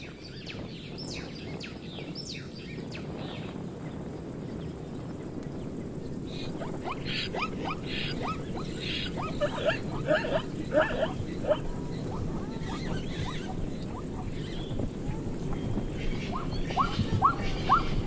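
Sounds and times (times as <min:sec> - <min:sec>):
outdoor background noise: 0:00.0 - 0:18.0
short sharp animal calls: 0:06.8 - 0:11.7.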